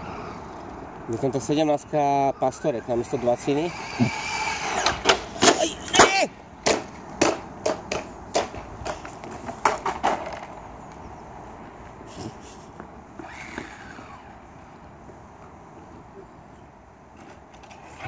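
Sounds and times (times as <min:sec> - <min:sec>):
street background: 0:00.0 - 0:18.0
faint falling whine: 0:13.2 - 0:16.6.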